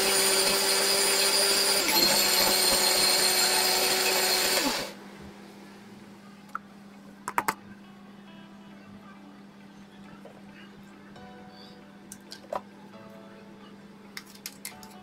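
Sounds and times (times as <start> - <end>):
mixer grinder motor whining: 0.0 - 5.0.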